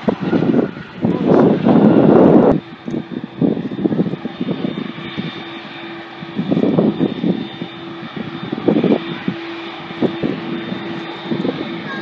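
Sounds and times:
aircraft engine whine: 0:00.0 - 0:12.0
wind buffeting microphone: 0:00.0 - 0:12.0.

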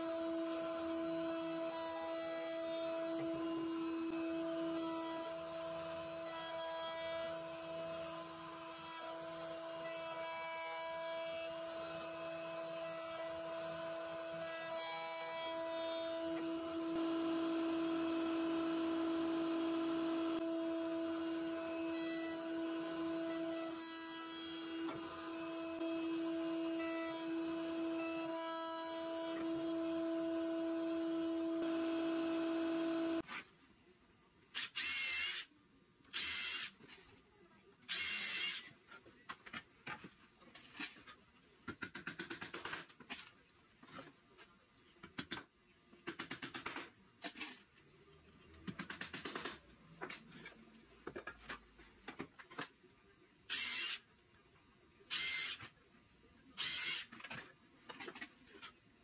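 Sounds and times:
mortiser motor hum: 0:11.5 - 0:33.2.

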